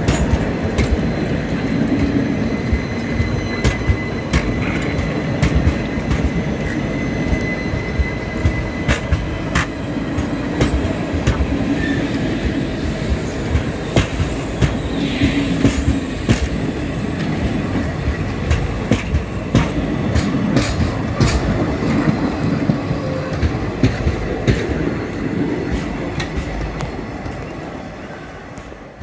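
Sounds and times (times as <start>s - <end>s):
train wheels rumbling on track: 0.0s - 29.0s
wheels clacking over rail joints: 17.2s - 27.6s.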